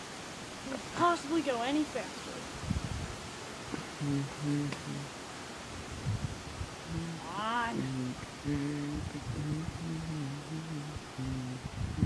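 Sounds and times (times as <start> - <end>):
person humming low tune: 4.0 - 5.1, 6.8 - 12.0.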